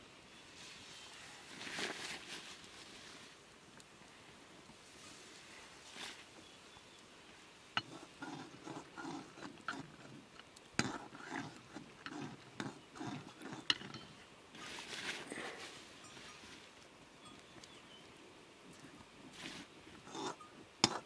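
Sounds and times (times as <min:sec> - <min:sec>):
ladle scraping metal pot: 0:07.8 - 0:15.0, 0:20.0 - 0:21.0.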